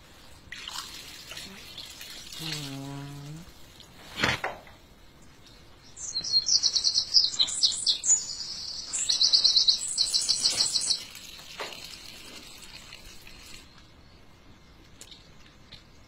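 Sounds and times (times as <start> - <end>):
songbird chirping trills: 5.3 - 11.2.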